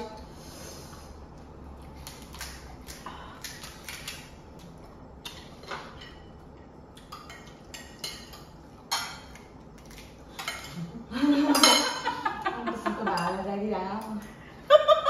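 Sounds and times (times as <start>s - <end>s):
spoons clinking against bowls: 7.0s - 9.5s, 10.4s - 10.8s, 11.4s - 12.2s, 12.9s - 14.2s.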